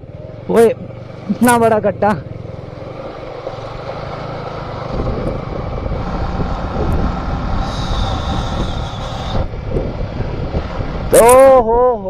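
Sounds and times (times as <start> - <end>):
motorcycle engine running: 0.0 - 11.6.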